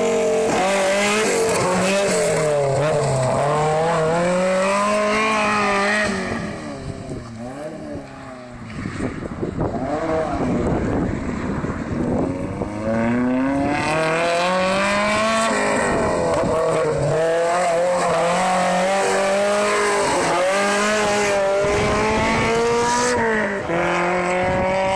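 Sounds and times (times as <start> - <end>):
rally car engine revving: 0.0 - 24.9.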